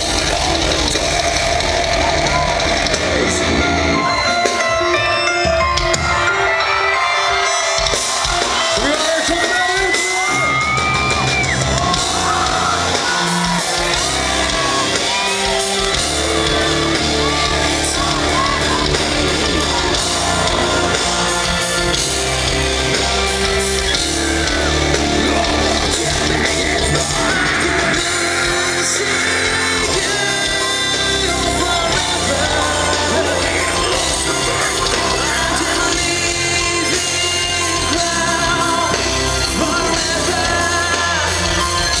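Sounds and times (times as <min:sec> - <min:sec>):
live rock band playing: 0:00.0 - 0:42.0
person singing: 0:11.7 - 0:42.0.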